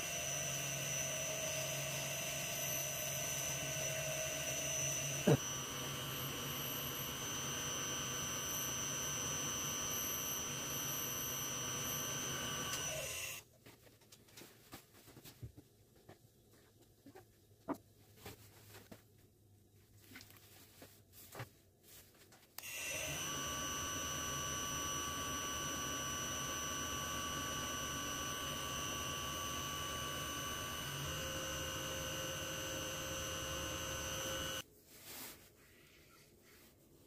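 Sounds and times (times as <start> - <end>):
lathe motor whining: 0.0 - 13.4, 22.6 - 34.6.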